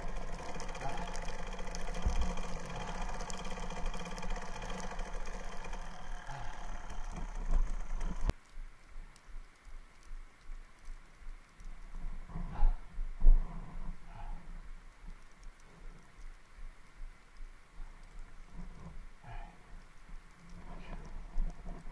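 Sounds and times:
muffled motorcycle engine running: 0:00.0 - 0:08.3.

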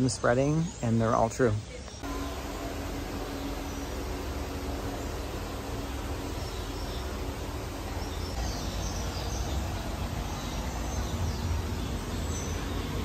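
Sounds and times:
low rumbling background noise: 0:00.0 - 0:13.0
faint high bird chirps: 0:03.2 - 0:13.0.

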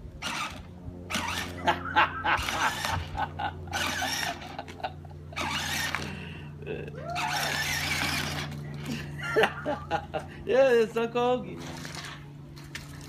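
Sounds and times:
plastic wheels grinding over dirt: 0:00.0 - 0:04.8, 0:05.4 - 0:06.2, 0:07.1 - 0:09.6, 0:11.4 - 0:13.0
toy electric motor whining: 0:00.0 - 0:09.7.

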